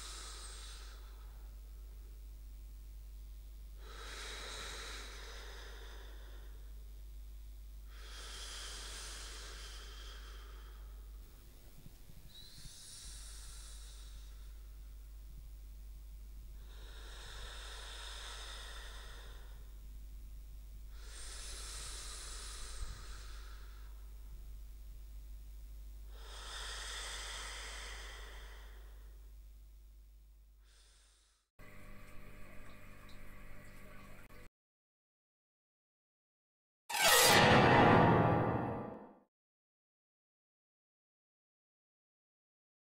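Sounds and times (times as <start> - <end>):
sleeping breaths: 0.0 - 1.4, 12.3 - 14.8, 20.9 - 24.1, 26.1 - 29.2
low steady hum: 0.0 - 34.5
faint low hum: 9.8 - 26.3.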